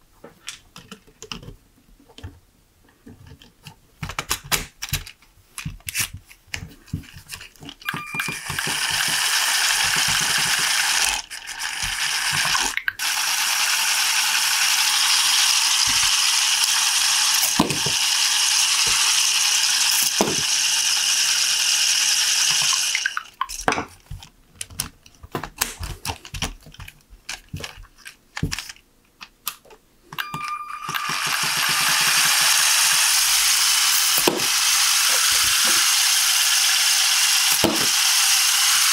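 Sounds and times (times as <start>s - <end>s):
plastic parts clicking: 0.4s - 13.0s, 22.5s - 33.1s
motor-driven flywheels whirring: 7.9s - 23.3s, 30.5s - 38.9s.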